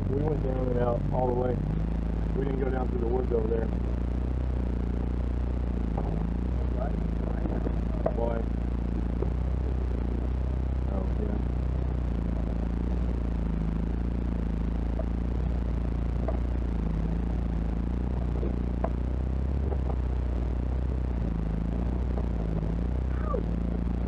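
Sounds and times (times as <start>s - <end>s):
vehicle engine running at low speed: 0.0s - 24.0s
light rattles and clicks from vehicle: 5.8s - 10.3s, 14.8s - 24.0s.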